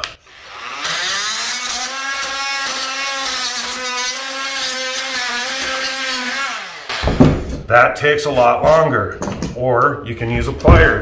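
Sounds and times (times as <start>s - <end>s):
oscillating multi-tool cutting: 0.2s - 7.0s.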